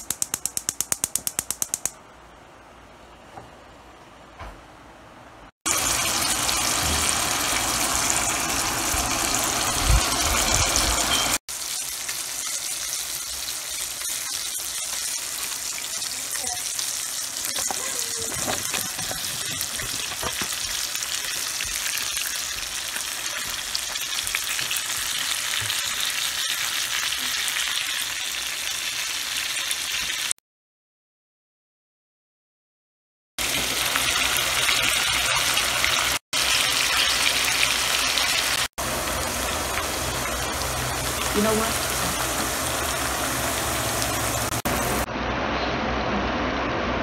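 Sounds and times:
steaks sizzling in hot oil: 5.7s - 30.3s, 33.4s - 45.1s.

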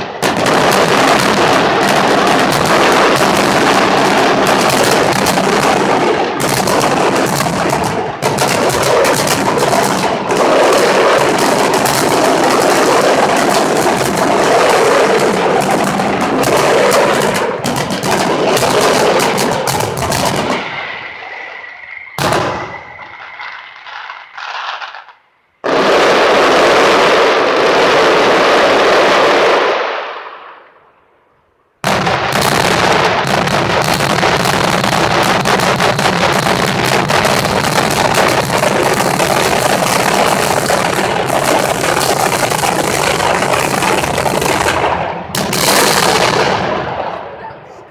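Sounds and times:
fireworks bangs and crackle: 0.0s - 31.0s, 31.7s - 47.9s
faint steady whistle: 20.6s - 25.6s.

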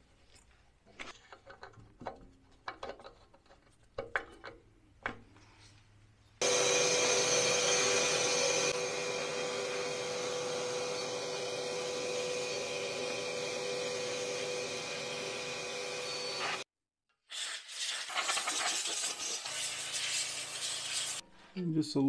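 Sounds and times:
shop vacuum running: 6.4s - 16.7s.

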